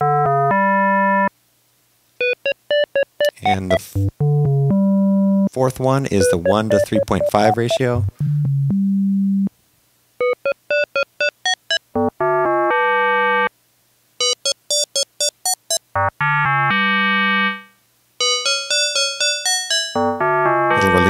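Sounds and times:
synthesizer notes: 0:03.2 - 0:04.9, 0:06.1 - 0:09.0.

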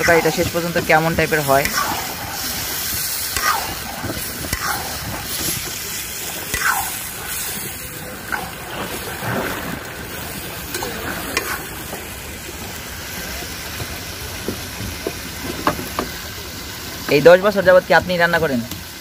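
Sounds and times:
curry sizzling in a pot: 0:00.0 - 0:19.0.

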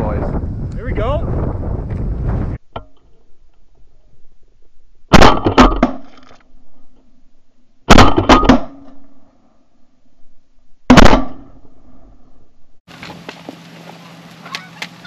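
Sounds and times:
shotgun fire: 0:05.1 - 0:06.1, 0:07.9 - 0:08.8, 0:10.9 - 0:11.6.

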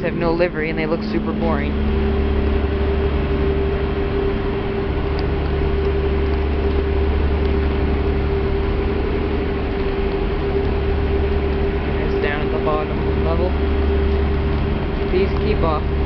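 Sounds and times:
ferry engines rumbling: 0:00.0 - 0:16.0.

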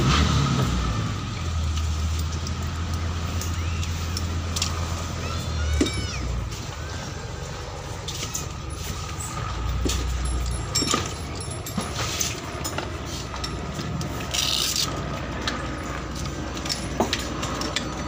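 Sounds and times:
boat engine droning: 0:00.0 - 0:18.0
scuba gear clicks and rattles: 0:08.0 - 0:18.0.

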